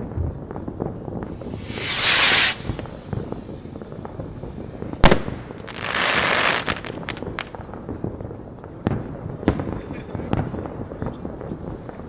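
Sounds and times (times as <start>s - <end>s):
firecrackers popping: 0.0s - 12.0s
hissing crackle of fireworks: 0.0s - 12.0s
firework loud bang: 0.2s - 6.3s.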